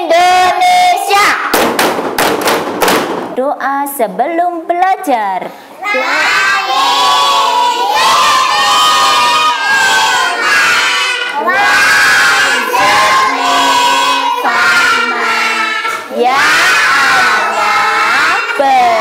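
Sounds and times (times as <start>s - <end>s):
children chanting in unison: 0.0s - 1.5s, 5.8s - 19.0s
teacher's voice: 3.4s - 19.0s.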